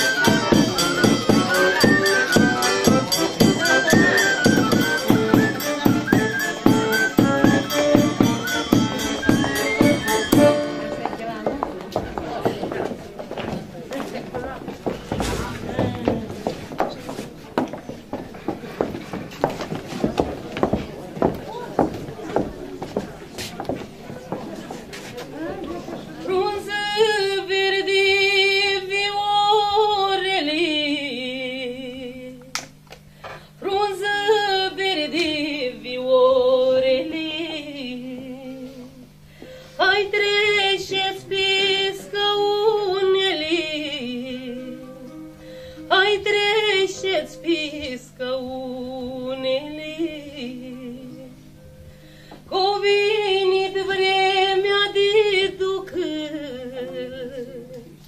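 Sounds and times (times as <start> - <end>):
woman singing folk song: 15.3 - 16.5, 26.2 - 32.5, 33.3 - 51.6, 52.5 - 58.0.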